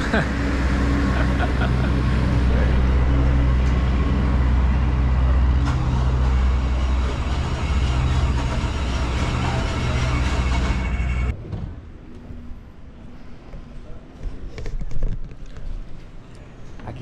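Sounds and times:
vehicle engine idling: 0:00.0 - 0:11.3.

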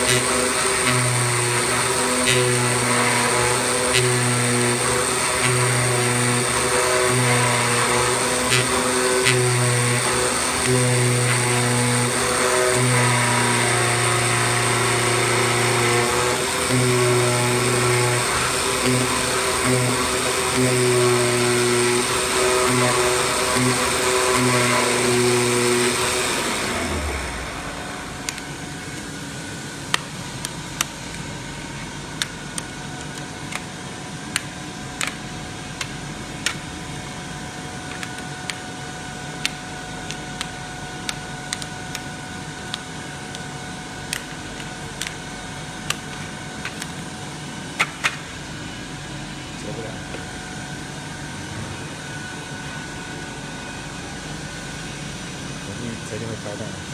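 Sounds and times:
cutter motor whines: 0:00.0 - 0:56.9
low machine hum: 0:00.0 - 0:56.9.

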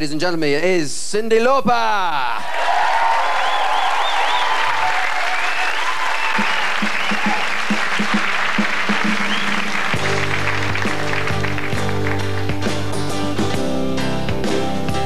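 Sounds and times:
audience applauding: 0:02.4 - 0:13.0.

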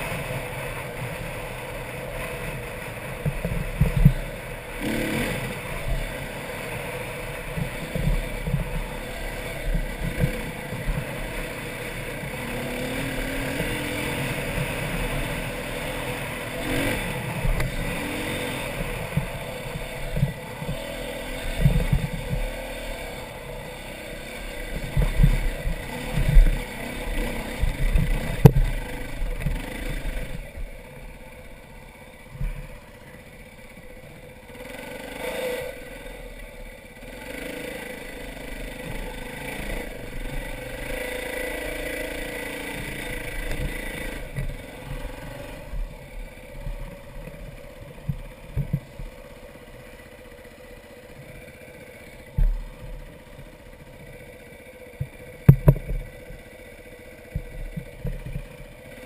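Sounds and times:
dirt bike engine revving: 0:00.0 - 0:59.0
loud thumps and clatter: 0:55.0 - 0:56.0.

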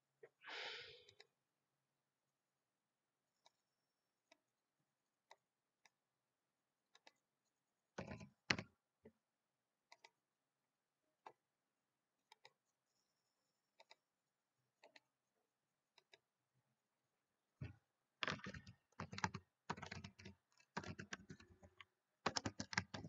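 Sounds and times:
mouse and keyboard clicks: 0:06.9 - 0:07.2, 0:08.0 - 0:08.7, 0:09.9 - 0:10.2, 0:12.3 - 0:12.6, 0:13.8 - 0:14.0, 0:14.8 - 0:15.1, 0:16.0 - 0:16.2, 0:17.6 - 0:23.0.

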